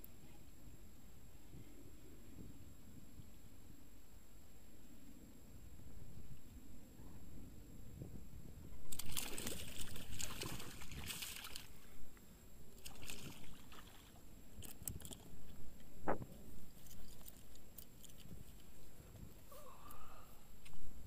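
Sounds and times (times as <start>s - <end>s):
fish splashing in water: 8.9s - 11.7s, 12.8s - 14.2s.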